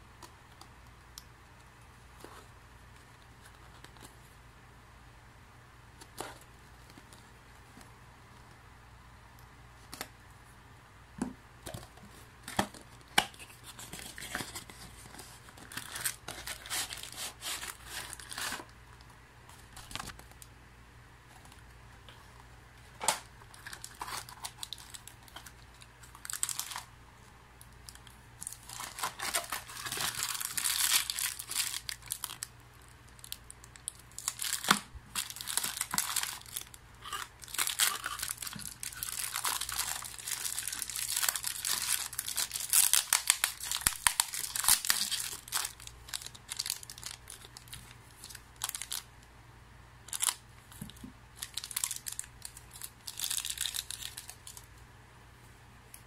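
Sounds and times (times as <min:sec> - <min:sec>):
plastic wrapping crinkling and tearing: 0:12.4 - 0:18.7, 0:23.0 - 0:26.9, 0:27.8 - 0:49.1, 0:50.0 - 0:54.7.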